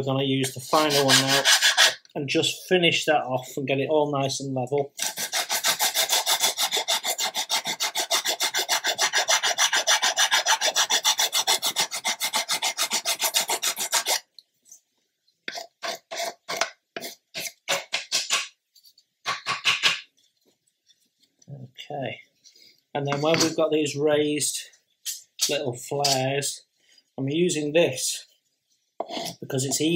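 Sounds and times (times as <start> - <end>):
file scraping wood: 0.5 - 2.1, 5.0 - 14.3, 15.5 - 18.5.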